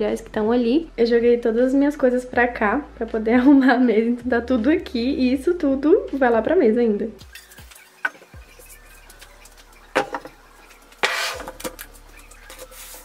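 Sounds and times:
objects knocking on desk: 10.0 - 10.4
brief scraping: 11.0 - 11.6.

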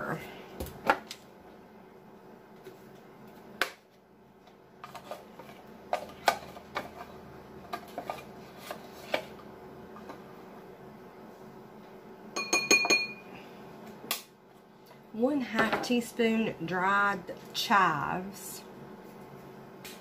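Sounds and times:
faint steady hum: 0.0 - 20.0
knocks with ringing clink: 12.4 - 13.2.

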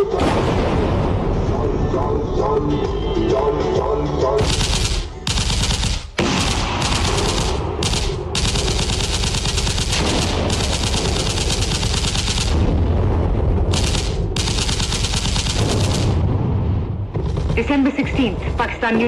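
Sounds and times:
machine-gun fire over loudspeakers: 4.4 - 16.6.

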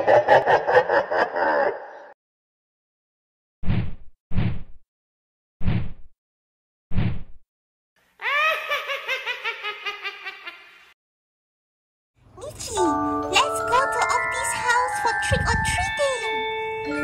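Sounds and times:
high-pitched cackling laughter: 0.0 - 2.2, 8.2 - 10.9.

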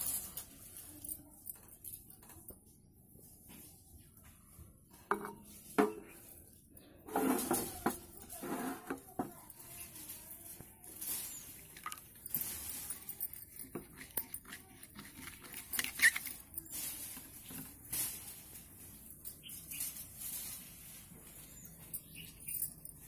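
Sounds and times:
spoon stirring thick paste: 13.2 - 16.6.

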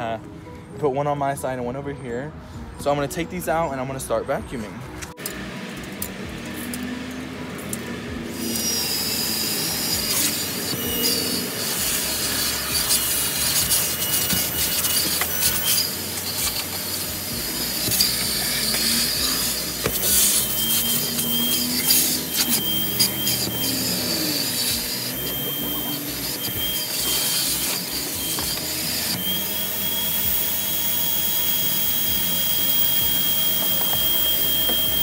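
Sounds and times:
vacuum cleaner running: 5.2 - 35.0.

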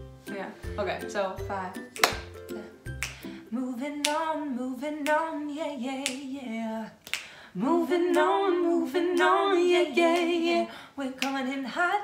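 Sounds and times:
women singing a jingle: 0.3 - 12.0
finger snaps: 1.9 - 3.4, 4.0 - 4.3, 6.0 - 6.3, 7.0 - 7.5, 11.2 - 11.4.

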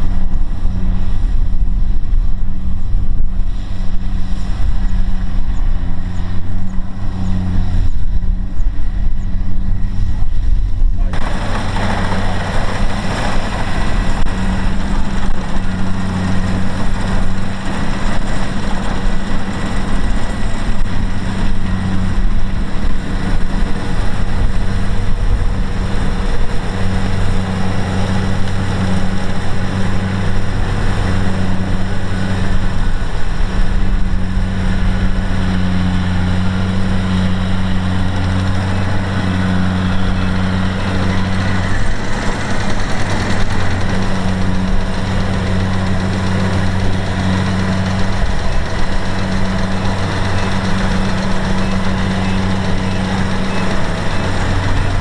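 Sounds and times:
combine harvester running: 0.0 - 55.0.

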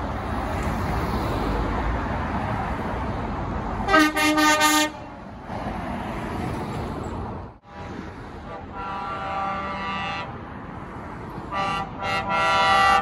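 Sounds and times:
rumble of passing vehicles: 0.0 - 13.0
truck horn toots: 3.9 - 5.2, 8.4 - 10.4, 11.5 - 13.0.

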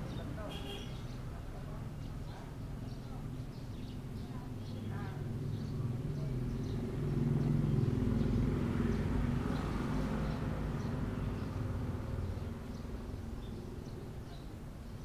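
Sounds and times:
vehicle engine passing by: 4.5 - 14.1.

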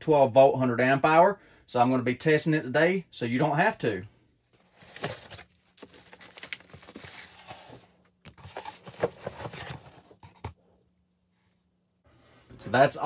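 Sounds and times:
cardboard and plastic rustling: 4.6 - 10.6.

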